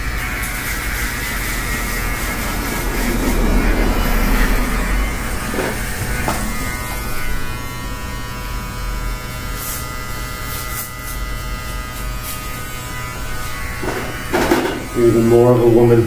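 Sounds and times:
electric hair clipper buzzing: 0:00.0 - 0:16.0.

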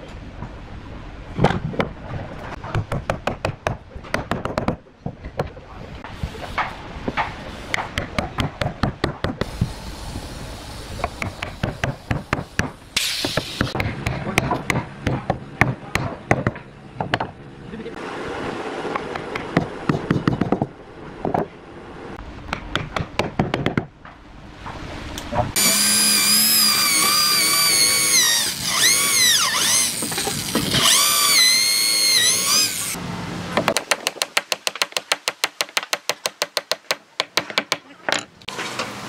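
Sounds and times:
wooden knocks and taps: 0:33.6 - 0:38.3.

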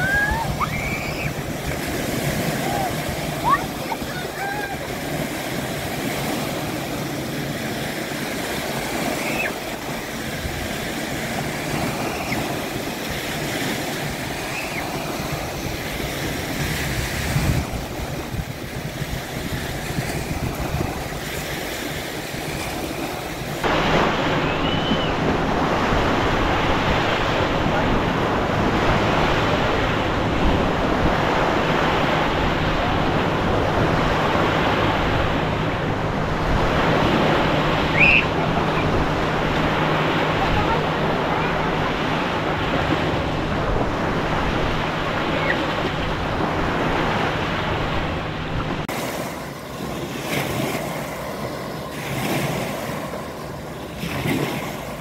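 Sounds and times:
moving water: 0:00.0 - 0:55.0
wind on microphone: 0:00.0 - 0:55.0.

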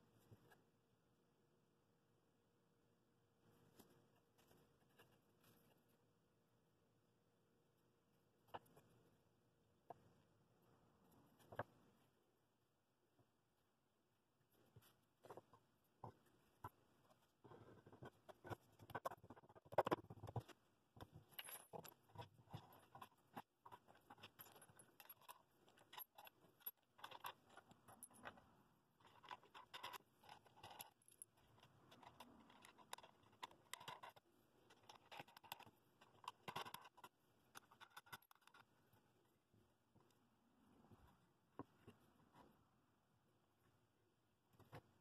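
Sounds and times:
metal washers clicking and clinking: 0:21.0 - 0:28.4, 0:29.0 - 0:38.7.

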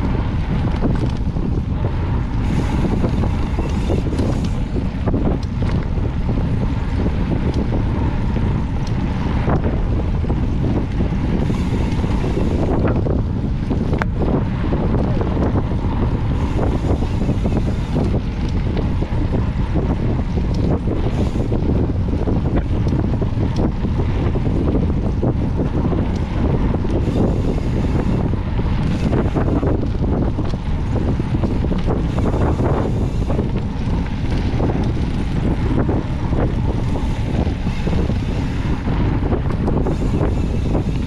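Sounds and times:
bike clicks and rattles: 0:00.0 - 0:41.0
wind buffeting microphone: 0:00.0 - 0:41.0.

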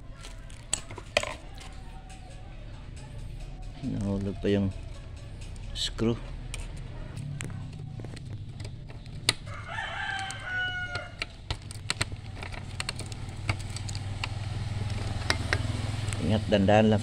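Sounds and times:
printer parts clicking: 0:07.4 - 0:15.7
rooster crowing: 0:09.4 - 0:11.4.

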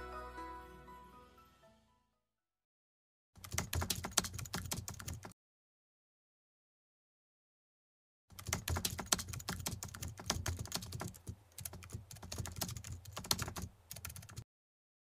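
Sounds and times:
rapid irregular clicking and tapping: 0:08.3 - 0:14.4.

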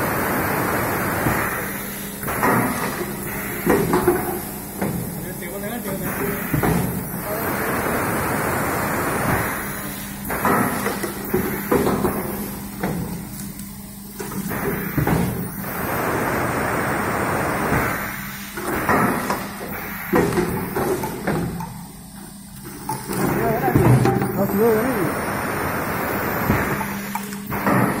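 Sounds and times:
compressed air hissing: 0:00.0 - 0:05.2, 0:05.8 - 0:13.2, 0:14.4 - 0:21.6, 0:23.1 - 0:28.0
pneumatic mould clamp clunks: 0:17.7 - 0:21.8, 0:26.4 - 0:28.0.

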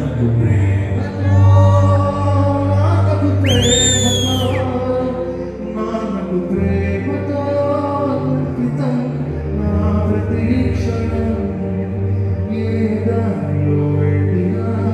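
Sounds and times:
man singing into a microphone: 0:00.0 - 0:14.9
high whistle-like sliding tone: 0:03.4 - 0:04.7.

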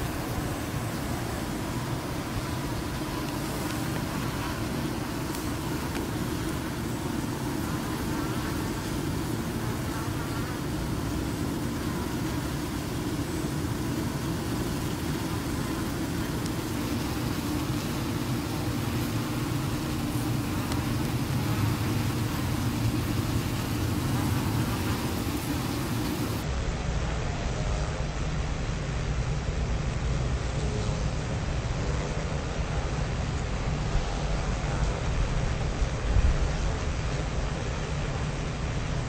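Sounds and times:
low outdoor rumble: 0:00.0 - 0:39.0
honey bee buzzing: 0:02.4 - 0:26.4.

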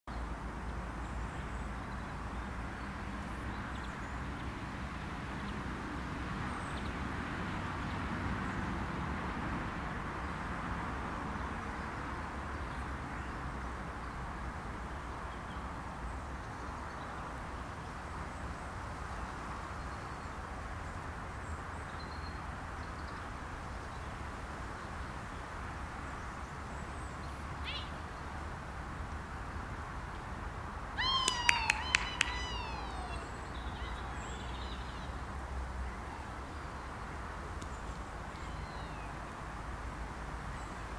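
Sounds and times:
faint high bird chirps: 0:27.6 - 0:28.0, 0:31.0 - 0:35.2.

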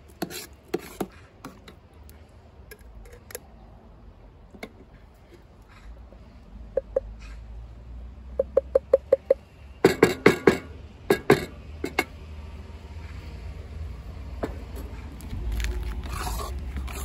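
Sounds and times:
paste being scraped: 0:00.2 - 0:01.1, 0:15.6 - 0:17.0.

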